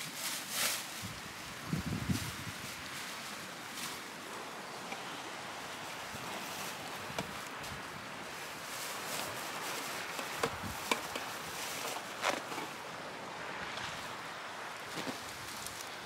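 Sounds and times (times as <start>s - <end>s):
wind: 0.0s - 16.0s
water noise: 0.9s - 16.0s
sharp clicks and knocks: 10.1s - 11.3s.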